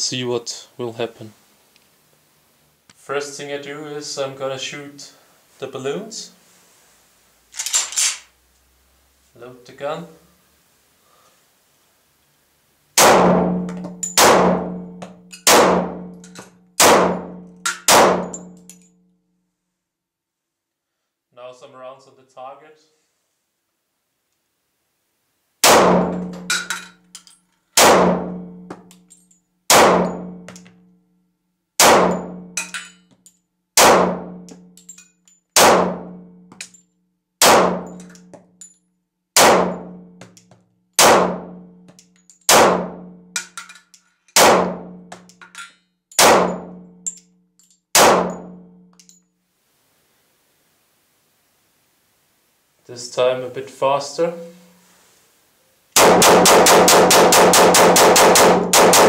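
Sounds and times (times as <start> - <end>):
pistol shots echoing: 13.0 - 16.1, 16.8 - 18.4, 25.6 - 26.4, 27.8 - 28.4, 29.7 - 30.4, 31.8 - 32.4, 33.8 - 34.4, 35.6 - 36.2, 37.4 - 38.0, 39.4 - 40.0, 41.0 - 41.6, 42.5 - 43.0, 44.4 - 44.9, 46.2 - 46.8, 48.0 - 48.6, 56.0 - 59.0.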